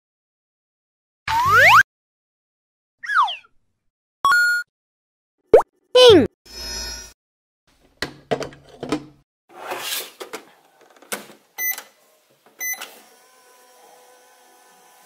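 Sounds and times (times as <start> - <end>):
plastic door clicking shut: 8.0 - 9.2, 10.3 - 11.4.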